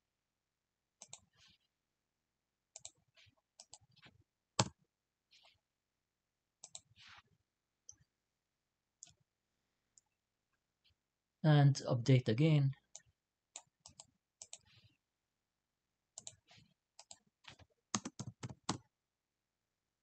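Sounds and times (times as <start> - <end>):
computer mouse and keyboard clicks: 1.0 - 1.4, 2.8 - 4.8, 6.6 - 7.0, 13.0 - 14.9, 16.2 - 18.9.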